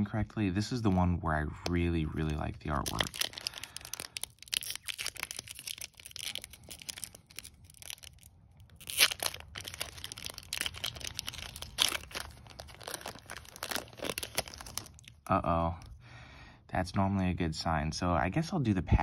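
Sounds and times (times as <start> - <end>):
foil wrapper crinkling and tearing: 0.7 - 15.9.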